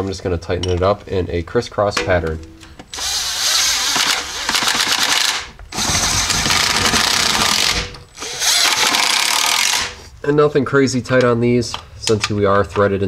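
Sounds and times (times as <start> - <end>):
impact driver hammering bolts: 2.8 - 10.0.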